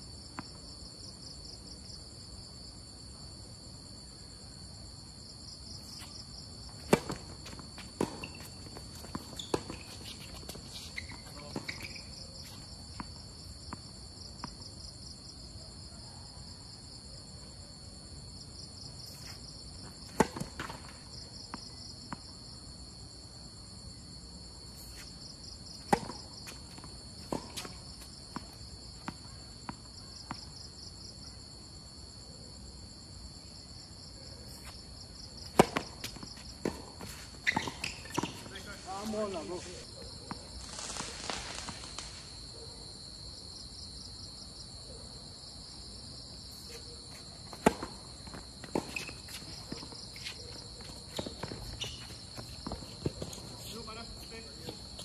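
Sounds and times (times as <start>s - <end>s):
insects chirping: 0.0s - 55.0s
tennis balls struck and bouncing: 6.8s - 12.1s, 19.8s - 22.3s, 25.8s - 30.4s, 35.4s - 38.5s, 47.5s - 53.5s.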